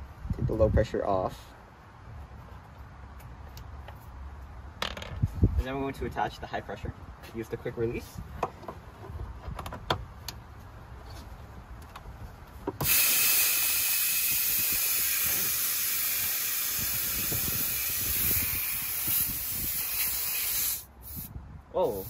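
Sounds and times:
refrigerant gas hissing: 12.8s - 22.0s.

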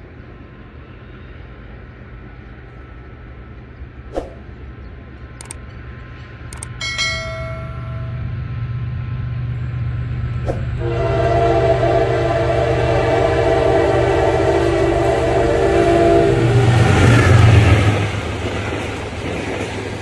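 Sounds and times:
locomotive engine rumble: 0.2s - 20.0s
short bell chime: 6.8s - 8.4s
locomotive horn chord: 10.7s - 17.0s.

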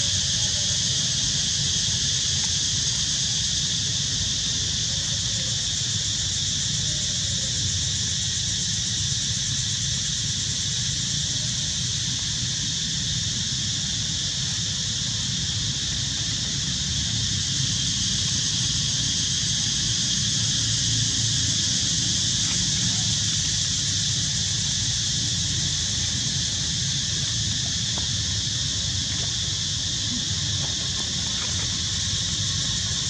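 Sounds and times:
high-pitched insect drone: 0.0s - 33.0s.

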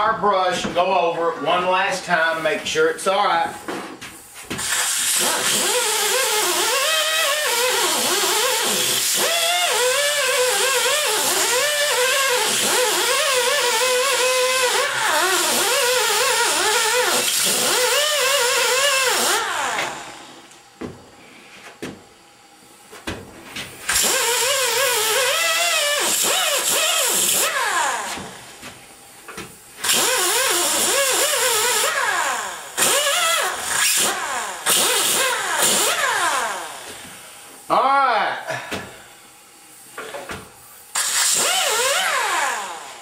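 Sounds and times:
air hiss: 4.6s - 5.4s
wire brush grinder whine: 4.7s - 20.2s, 23.9s - 28.2s, 29.8s - 36.8s, 40.9s - 42.9s.

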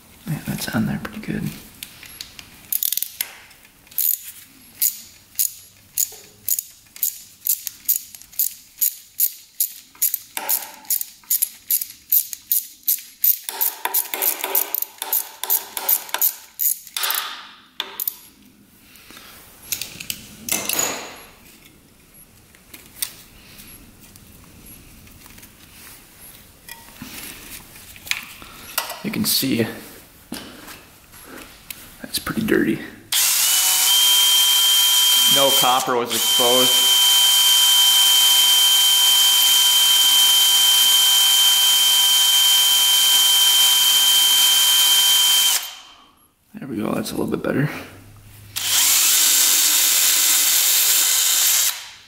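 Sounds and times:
socket ratchet clicking: 4.8s - 18.2s
rustling: 21.4s - 28.7s.

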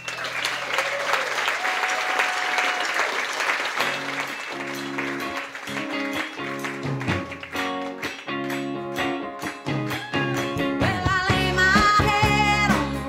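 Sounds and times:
audience applause: 0.0s - 10.7s
guitar playing chords: 3.8s - 13.0s.

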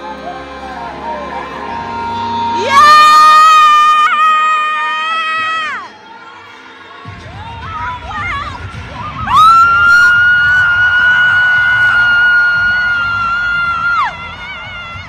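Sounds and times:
crowd cheering: 2.6s - 15.0s
high-pitched cheering scream: 8.3s - 15.0s.

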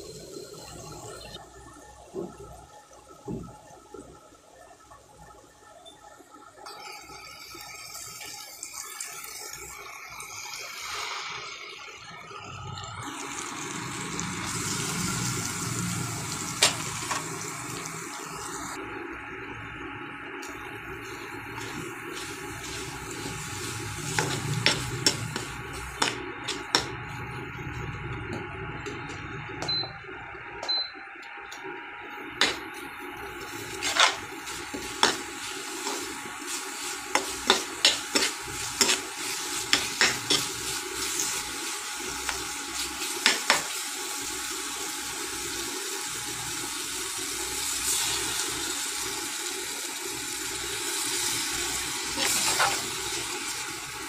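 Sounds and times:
food sizzling in oil: 6.7s - 12.0s, 13.0s - 27.8s, 32.1s - 54.0s
steel spatula scraping a pan: 33.7s - 35.2s, 35.8s - 41.3s.

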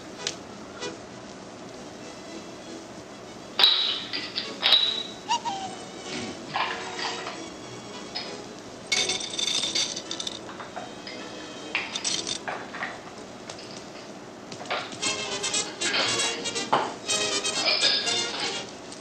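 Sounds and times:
ice cubes clinking into glass: 8.9s - 10.5s, 11.8s - 12.5s.

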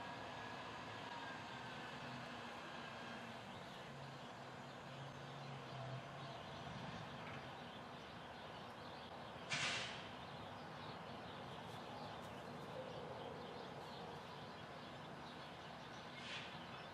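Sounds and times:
diesel engine running faintly: 0.0s - 16.9s
sharp air hiss: 9.5s - 10.1s.

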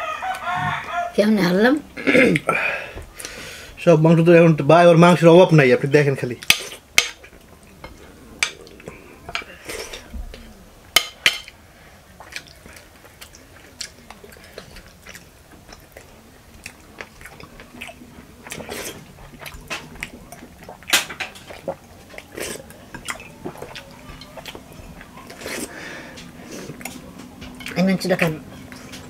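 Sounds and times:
chewing and mouth noises: 6.4s - 10.6s, 12.1s - 29.0s.

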